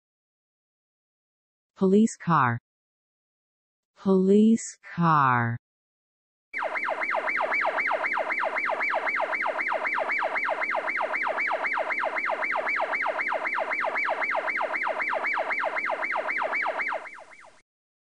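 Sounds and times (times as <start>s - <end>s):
police siren fast yelp: 6.6s - 17.6s.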